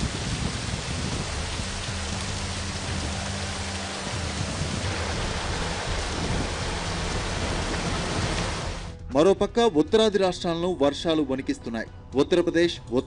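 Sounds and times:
heavy rain falling: 0.0 - 8.9.

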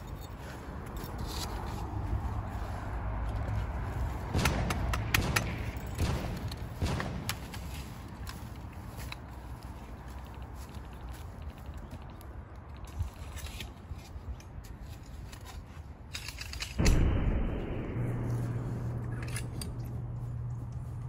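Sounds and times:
footsteps on dirt: 0.0 - 12.3, 16.8 - 21.0
sharp clicks and knocks: 4.4 - 8.4
rustling in dry brush: 6.2 - 12.1.

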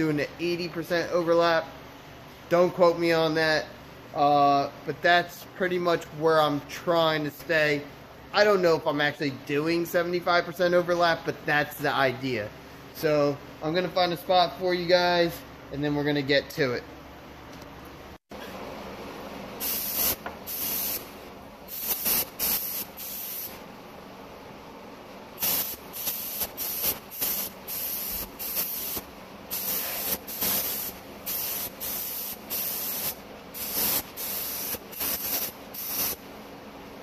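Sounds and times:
paint spray gun hissing: 19.6 - 21.1, 21.7 - 23.6, 25.4 - 36.2.

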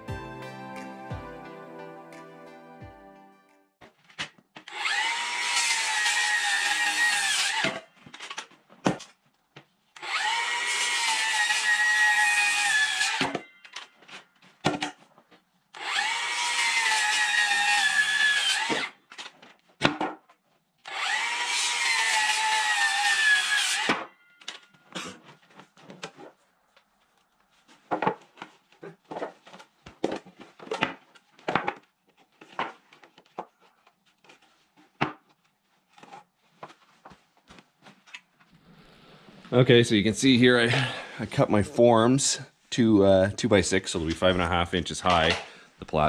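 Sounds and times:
circular saw cutting wood: 4.7 - 7.9, 10.0 - 13.5, 15.8 - 19.0, 20.9 - 24.1.

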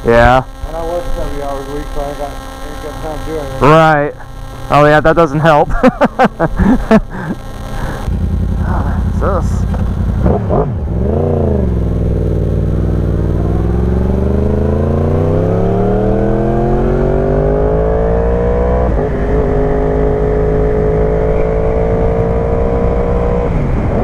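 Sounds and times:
gear change: 0.0 - 17.8
motorcycle engine revving: 0.0 - 24.0.

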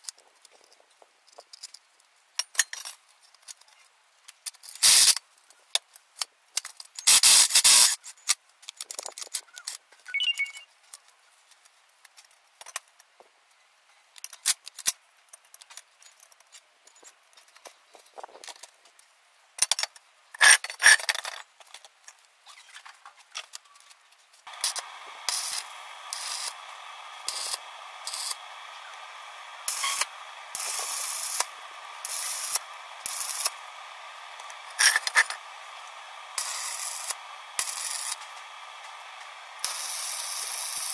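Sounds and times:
arc welding crackle: 4.8 - 5.2, 24.5 - 40.9
steady hiss: 4.8 - 5.2, 7.0 - 8.2, 24.5 - 40.9.

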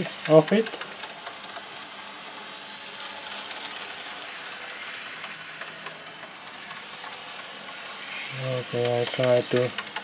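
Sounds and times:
model train motors whirring: 0.0 - 10.0
wheels ticking on rails: 0.0 - 10.0.

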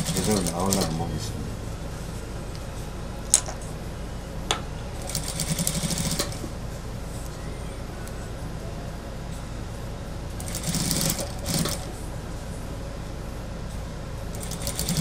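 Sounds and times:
sewing machine stitching: 0.0 - 0.9, 10.4 - 11.9, 14.4 - 15.0.

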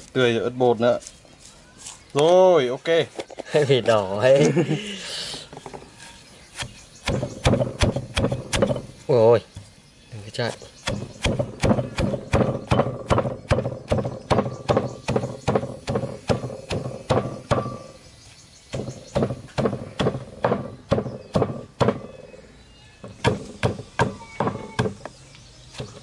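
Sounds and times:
pestle pounding in mortar: 6.6 - 8.9, 10.8 - 18.0, 18.7 - 22.2, 23.0 - 25.1.

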